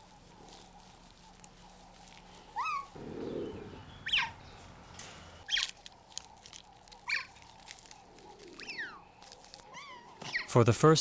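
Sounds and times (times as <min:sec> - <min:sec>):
high chirping calls: 0:02.6 - 0:04.7.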